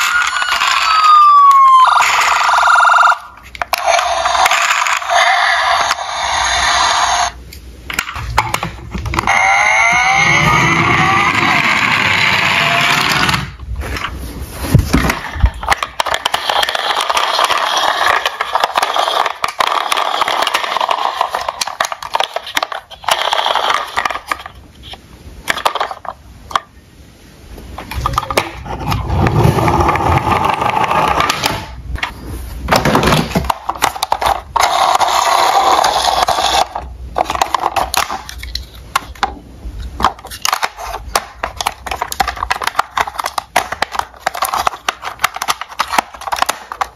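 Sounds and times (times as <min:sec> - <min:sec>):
toy car electronic engine revving: 0:00.0 - 0:07.4, 0:09.2 - 0:13.5.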